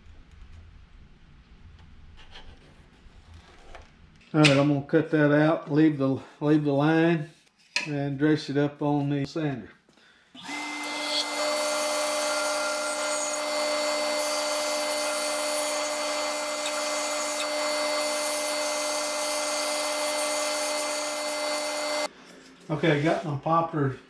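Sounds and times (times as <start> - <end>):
bandsaw humming and whining: 10.4 - 22.1.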